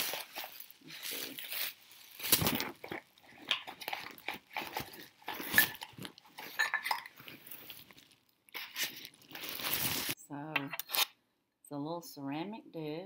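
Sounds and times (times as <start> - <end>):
bubble wrap and cardboard crinkling: 0.0 - 10.2.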